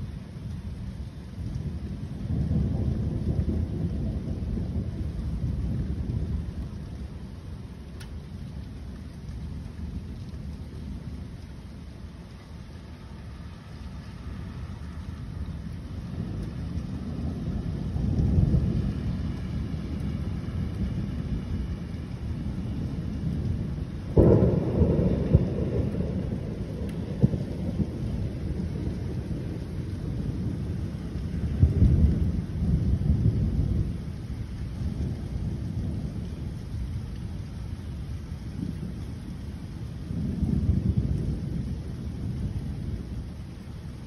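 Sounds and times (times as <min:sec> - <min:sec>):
steady rain hissing: 0:00.0 - 0:44.0
thunder rolling: 0:01.5 - 0:08.0, 0:14.5 - 0:37.4, 0:38.5 - 0:43.5
sharp thunder crack: 0:24.1 - 0:29.5.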